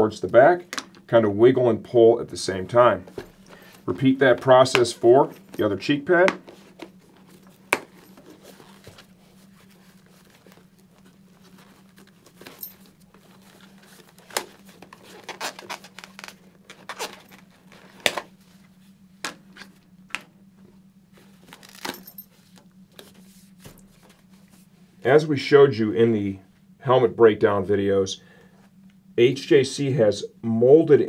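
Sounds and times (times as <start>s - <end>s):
padding rustling against shell: 2.7s - 24.8s.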